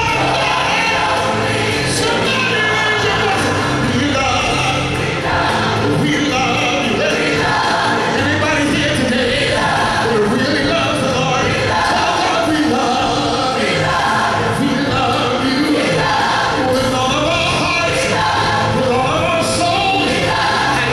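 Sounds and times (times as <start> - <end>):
choir singing: 0.0 - 20.9
instrumental accompaniment: 0.0 - 20.9
man singing into a microphone: 2.0 - 5.0, 5.9 - 7.3, 8.2 - 13.8, 14.5 - 16.0, 16.6 - 20.9.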